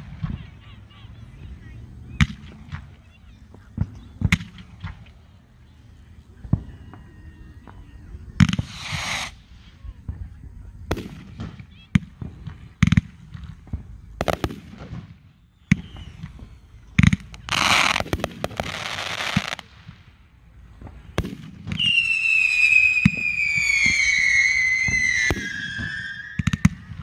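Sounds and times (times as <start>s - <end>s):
fireworks booming: 0.0s - 27.0s
fireworks crackling: 0.0s - 27.0s
descending firework whistle: 6.4s - 10.2s, 14.2s - 19.7s, 21.0s - 27.0s.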